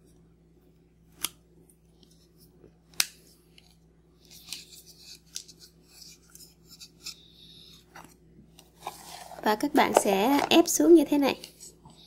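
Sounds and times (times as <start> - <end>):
plastic rustling: 8.7 - 10.7.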